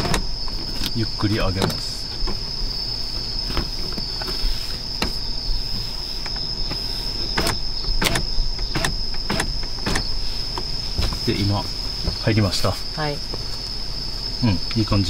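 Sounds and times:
crickets chirring: 0:00.0 - 0:15.0
power window motor: 0:06.2 - 0:10.2
sharp clicks of window glass: 0:06.2 - 0:10.7.

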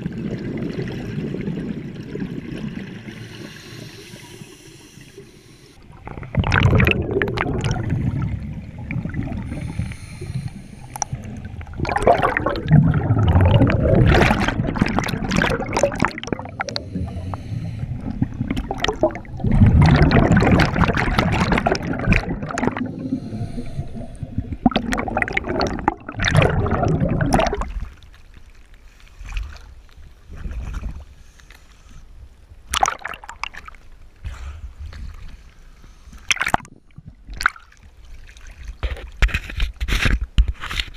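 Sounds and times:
underwater bubbles gurgling: 0:00.0 - 0:28.6, 0:32.7 - 0:34.0
sharp bubbly splashes: 0:05.9 - 0:09.8, 0:11.1 - 0:17.3, 0:18.0 - 0:27.9, 0:32.7 - 0:33.6.

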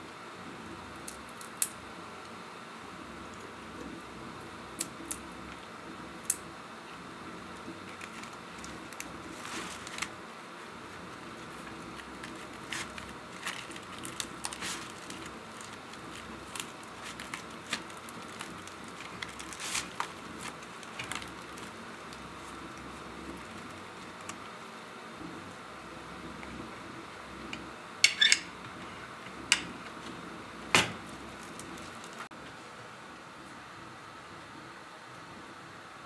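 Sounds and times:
flatbread rustling and clicking: 0:07.6 - 0:10.2, 0:11.0 - 0:24.5.

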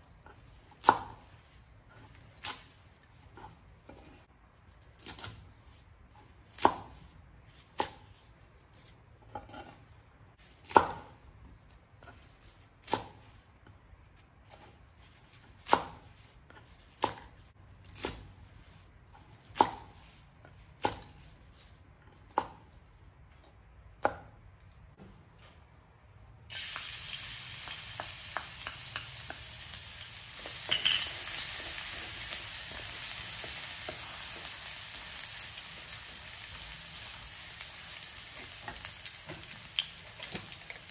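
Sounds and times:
knife chopping on wooden board: 0:00.2 - 0:01.2, 0:06.5 - 0:08.2, 0:14.4 - 0:18.4, 0:19.1 - 0:22.8
food sizzling in hot oil: 0:26.5 - 0:40.9.

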